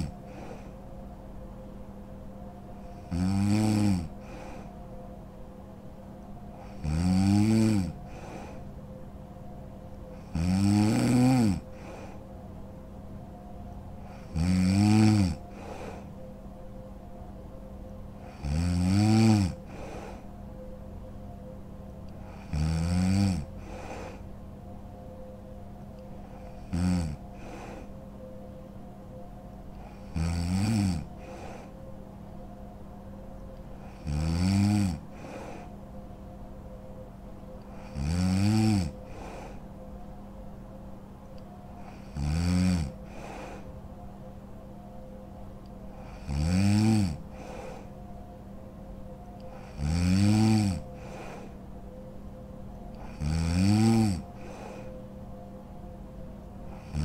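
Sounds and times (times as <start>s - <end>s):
woman snoring: 0.0s - 0.7s, 2.8s - 4.8s, 6.6s - 8.6s, 10.1s - 12.2s, 14.0s - 16.1s, 18.2s - 20.3s, 22.2s - 24.2s, 26.2s - 27.9s, 29.7s - 31.7s, 33.8s - 35.8s, 37.6s - 39.6s, 41.8s - 43.7s, 45.9s - 48.0s, 49.4s - 51.6s, 52.9s - 55.0s, 56.7s - 57.0s
faint steady hum: 0.0s - 57.0s.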